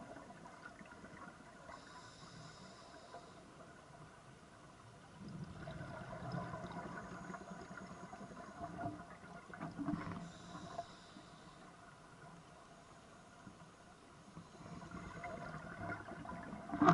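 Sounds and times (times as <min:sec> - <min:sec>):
faint steady hiss: 0:00.0 - 0:16.9
bubbles gurgling underwater: 0:05.3 - 0:07.4.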